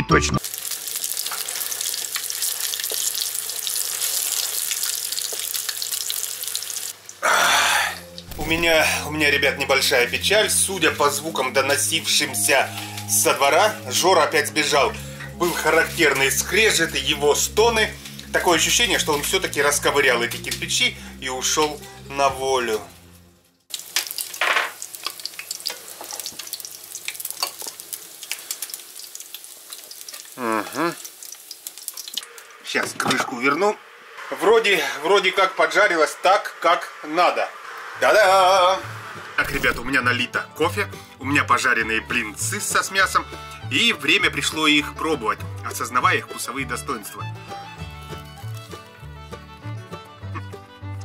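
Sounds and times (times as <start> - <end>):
food sizzling in a pan: 0.4 - 8.8, 14.2 - 19.6, 22.8 - 39.9, 47.2 - 49.0.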